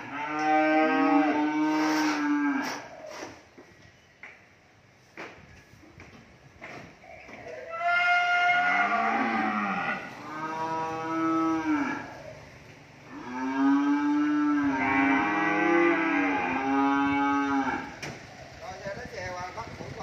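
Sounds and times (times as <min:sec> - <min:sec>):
cattle mooing: 0:00.0 - 0:03.0, 0:07.5 - 0:12.4, 0:13.0 - 0:18.0.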